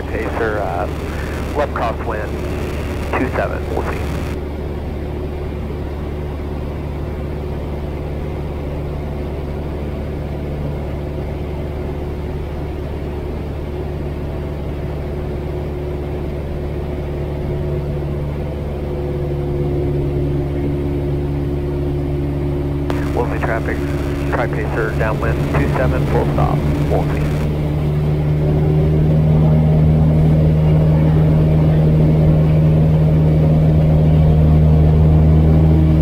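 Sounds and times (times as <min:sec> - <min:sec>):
propeller plane engine droning: 0:00.0 - 0:04.4, 0:18.2 - 0:36.0.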